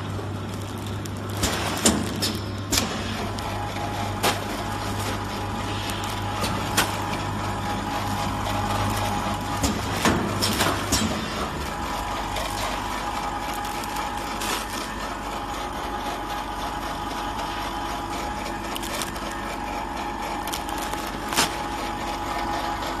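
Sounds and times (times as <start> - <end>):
packaging machine humming: 0.0 - 23.0.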